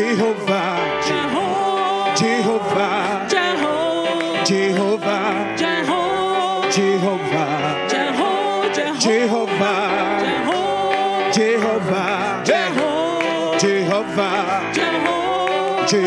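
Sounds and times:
gospel singing with band: 0:00.0 - 0:16.0.

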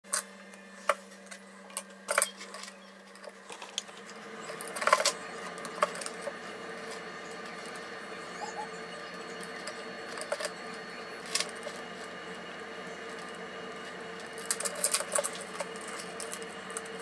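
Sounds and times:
low hum: 0:00.1 - 0:17.0
small metal parts clinking: 0:14.4 - 0:16.9.

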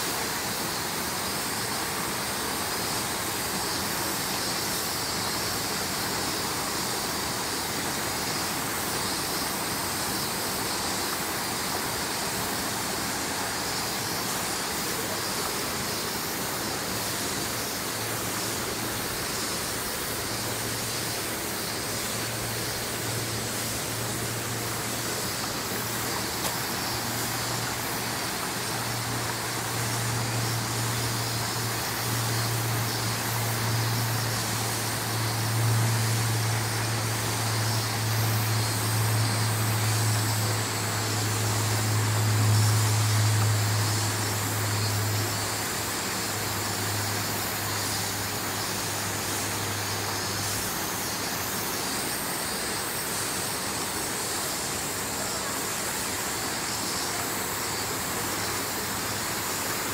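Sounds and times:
outdoor background hiss: 0:00.0 - 0:59.9
low machine hum: 0:14.4 - 0:50.8.

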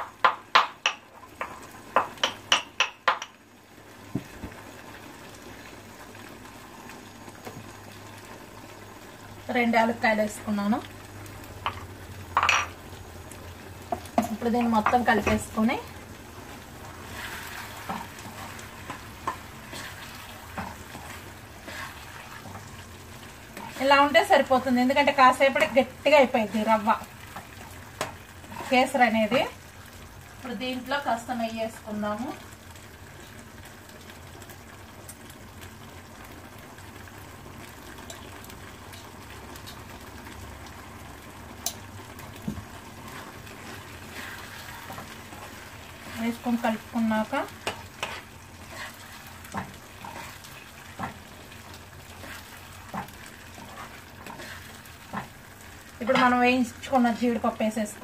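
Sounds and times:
spoon stirring and scraping pan: 0:00.0 - 0:03.4, 0:13.8 - 0:30.0, 0:41.6 - 0:57.4
cooking sizzle: 0:00.0 - 0:58.0.

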